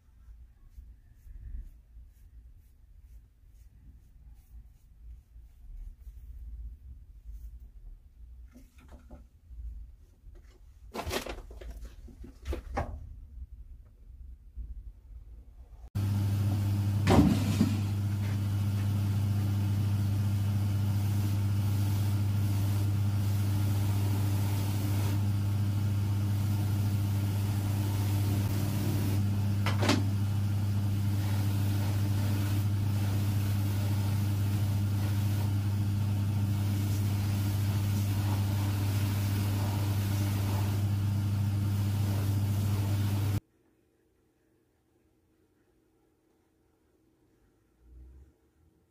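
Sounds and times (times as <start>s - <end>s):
machine humming: 16.0s - 43.4s.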